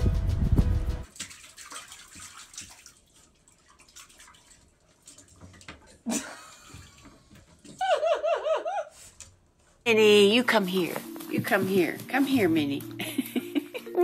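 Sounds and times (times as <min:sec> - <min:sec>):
dog lapping water: 0:01.1 - 0:06.1.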